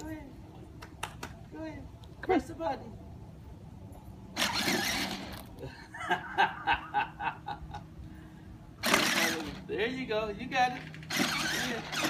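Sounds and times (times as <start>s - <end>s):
ride-on toy motor humming: 4.3s - 5.5s, 8.8s - 9.6s, 10.7s - 12.0s
person chuckling: 5.6s - 8.0s
breathy rush of air: 8.0s - 8.8s.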